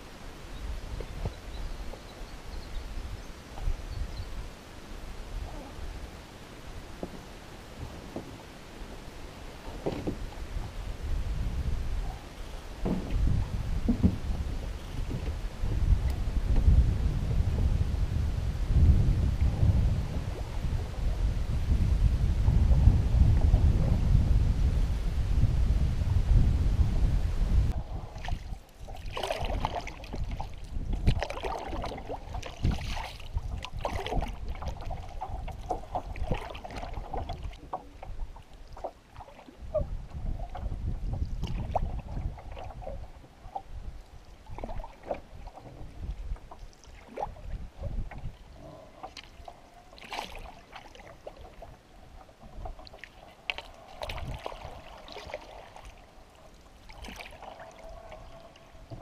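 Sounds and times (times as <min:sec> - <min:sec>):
canoe paddle strokes: 0:00.0 - 0:23.9, 0:27.7 - 0:59.0
wind rumble on microphone: 0:00.0 - 0:59.0
water splashing and lapping: 0:04.4 - 0:16.8, 0:27.7 - 0:59.0.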